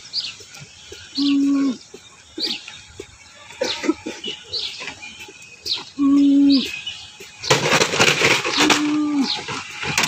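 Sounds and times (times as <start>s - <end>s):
small birds chirping: 0.0s - 7.6s, 8.4s - 10.0s.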